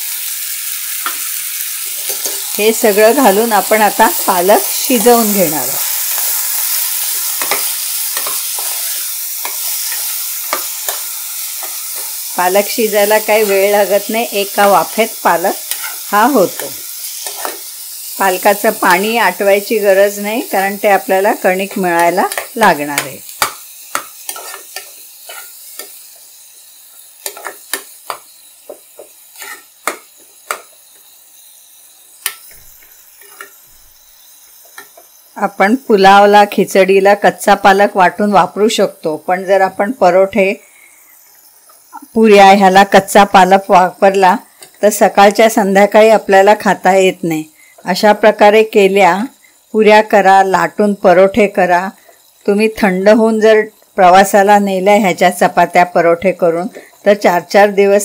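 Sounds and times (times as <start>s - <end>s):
spinach sizzling in hot oil: 0.0s - 58.0s
steel spoon scraping a pan: 0.2s - 31.0s, 32.2s - 35.2s.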